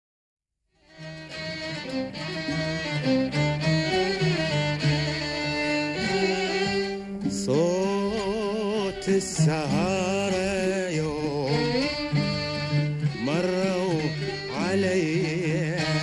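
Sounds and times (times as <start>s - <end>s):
arabic string ensemble: 0.8s - 16.0s
man singing: 6.0s - 16.0s.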